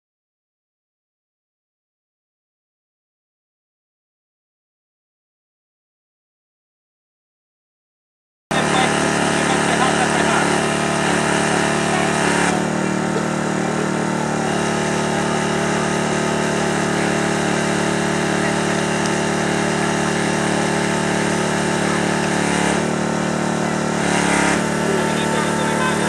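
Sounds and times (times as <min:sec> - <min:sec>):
hydraulic power unit engine running: 0:08.5 - 0:26.0.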